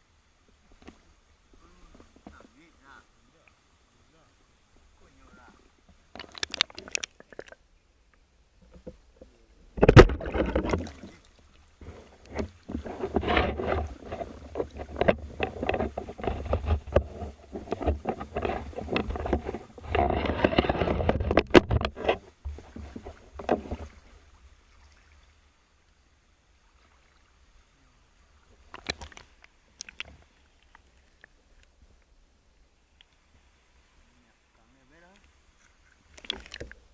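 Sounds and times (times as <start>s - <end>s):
water sloshing and splashing: 4.8s - 7.6s, 8.6s - 31.7s, 35.0s - 36.9s.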